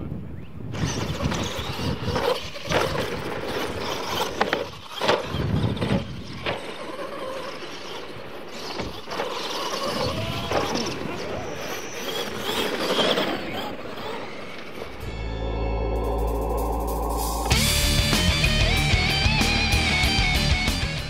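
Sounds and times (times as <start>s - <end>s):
toy truck motors running: 0.7s - 15.1s
tyres on dirt: 0.8s - 16.3s.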